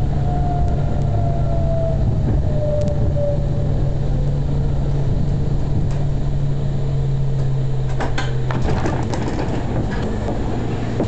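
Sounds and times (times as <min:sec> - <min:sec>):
tram drive humming: 0:00.0 - 0:11.0
car body rattling: 0:07.2 - 0:11.0
wheels clicking on rails: 0:07.2 - 0:11.0.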